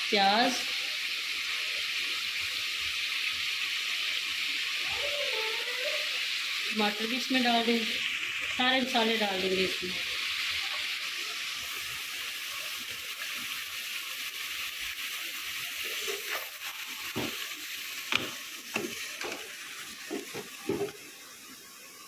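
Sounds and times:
food sizzling in a pan: 0:00.0 - 0:22.0
spoon knocking against pan: 0:18.1 - 0:19.5, 0:20.1 - 0:21.0.

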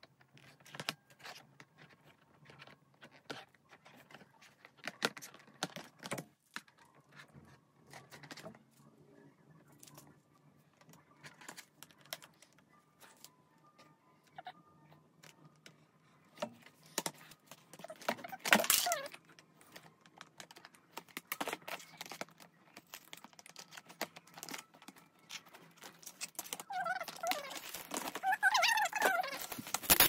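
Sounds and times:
plastic squeaks: 0:10.8 - 0:30.0.

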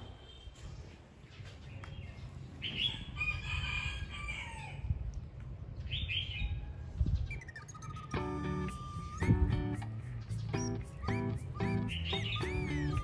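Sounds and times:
rooster crowing: 0:03.0 - 0:04.9.

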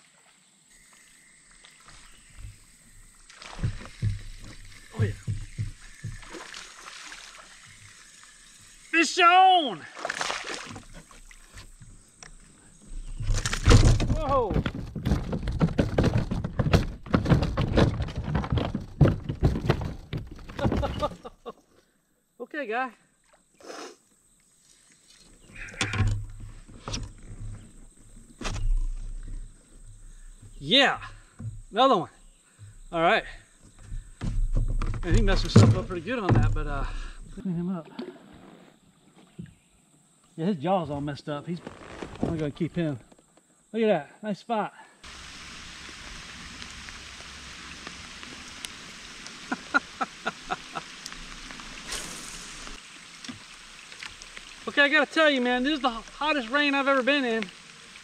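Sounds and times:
rain pattering on water: 0:45.1 - 0:58.0.

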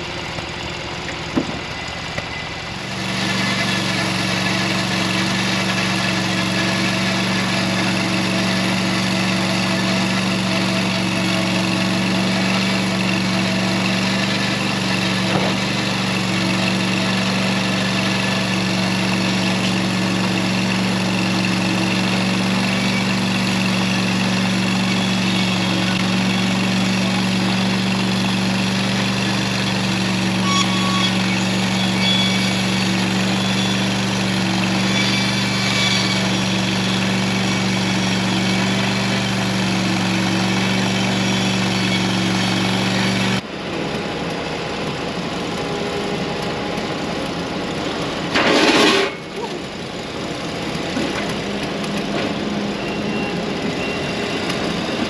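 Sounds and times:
gas engine running under load: 0:00.0 - 0:55.0
bandsaw cutting log: 0:02.8 - 0:43.4.

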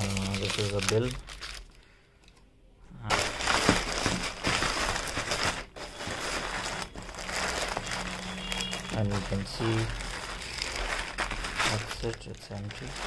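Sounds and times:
paper and plastic bag crinkling: 0:00.0 - 0:02.0, 0:03.1 - 0:13.0.

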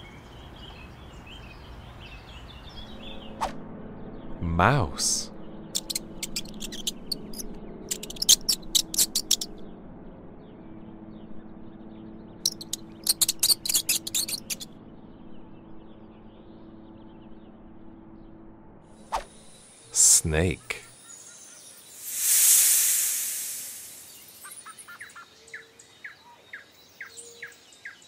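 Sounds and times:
mouse squeaking: 0:05.8 - 0:09.6, 0:12.5 - 0:14.7.

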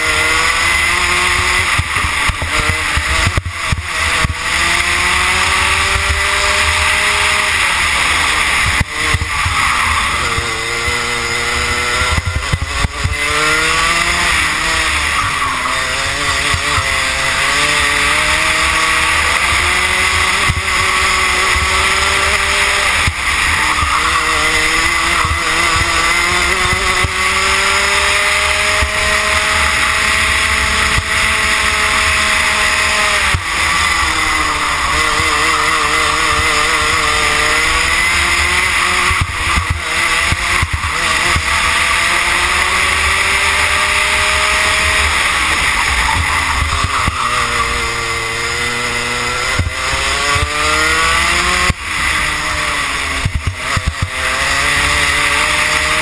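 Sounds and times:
kart engine revving: 0:00.0 - 0:56.0.

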